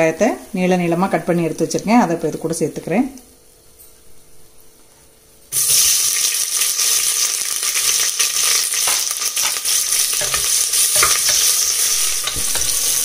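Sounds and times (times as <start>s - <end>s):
onions sizzling in hot oil: 5.5s - 13.0s.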